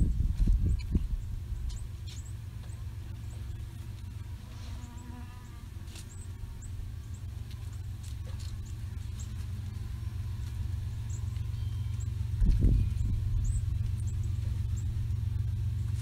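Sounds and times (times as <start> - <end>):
steady low hum: 0.0 - 16.0
songbird chip calls: 10.9 - 15.0.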